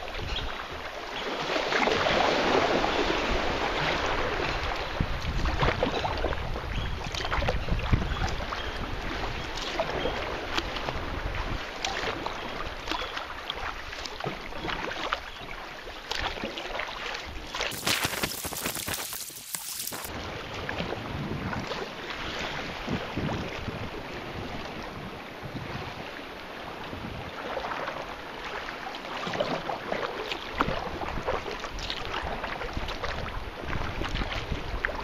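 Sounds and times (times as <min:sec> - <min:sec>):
rush of water: 0:00.0 - 0:35.0
water splashing around kayak: 0:00.0 - 0:35.0
wind rumble on microphone: 0:01.8 - 0:12.8, 0:20.0 - 0:27.6, 0:30.6 - 0:35.0.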